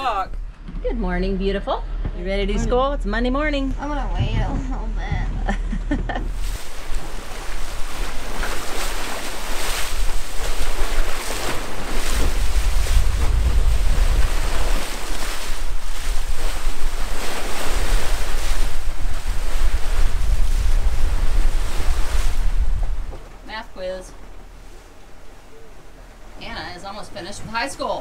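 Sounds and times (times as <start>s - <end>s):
wind buffeting microphone: 0.0s - 28.0s
bow wave rushing and splashing: 6.3s - 28.0s.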